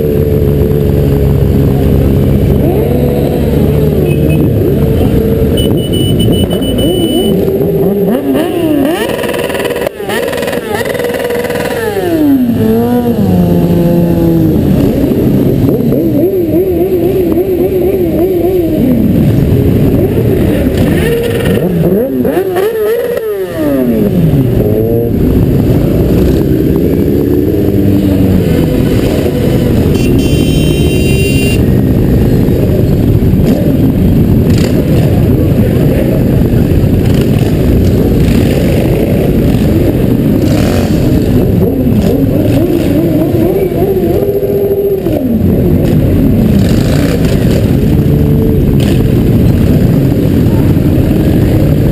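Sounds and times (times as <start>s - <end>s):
motorcycle engine revving: 0.0s - 51.9s
rumble of many motorcycles: 0.0s - 51.9s.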